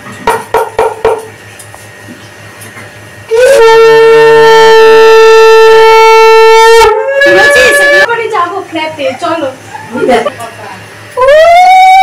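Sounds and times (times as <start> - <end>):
conch shell blown: 3.3 - 8.1.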